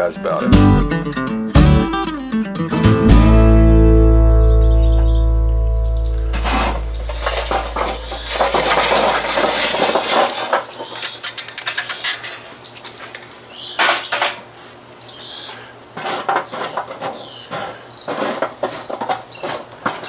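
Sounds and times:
birds chirping: 3.8s - 9.6s, 10.5s - 14.2s, 15.0s - 15.8s, 16.4s - 19.7s
coals clinking: 6.0s - 12.5s
metal poker scraping coals: 6.2s - 12.5s, 16.0s - 20.0s
charcoal clattering onto metal table: 6.3s - 12.4s.

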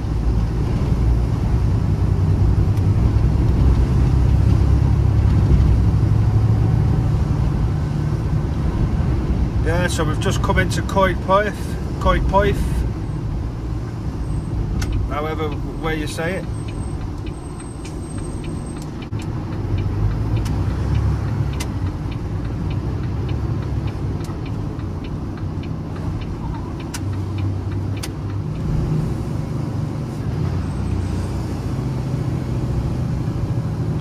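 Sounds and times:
truck diesel engine pulling away: 16.5s - 34.0s.

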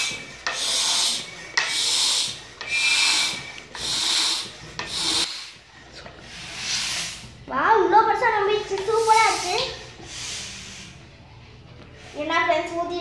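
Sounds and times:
pump air hissing: 0.0s - 5.6s, 6.2s - 7.4s, 8.7s - 11.0s.

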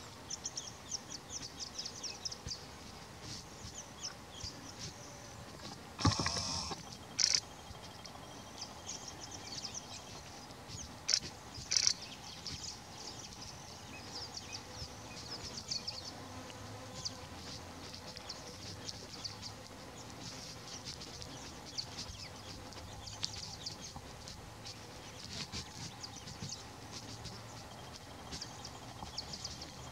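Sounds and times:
rustles: 0.0s - 29.9s
small birds chirping: 0.0s - 29.9s
insects chirping: 6.0s - 9.0s, 11.1s - 12.1s.

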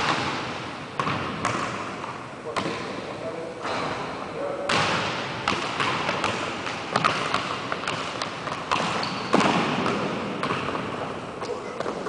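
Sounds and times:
basketball bouncing on wooden floor: 1.0s - 1.8s, 4.7s - 11.0s.

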